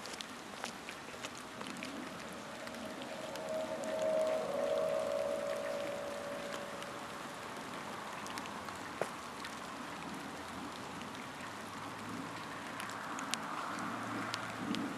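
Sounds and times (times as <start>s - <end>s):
outdoor ambience hiss: 0.0s - 14.9s
faint ticks: 8.2s - 14.9s.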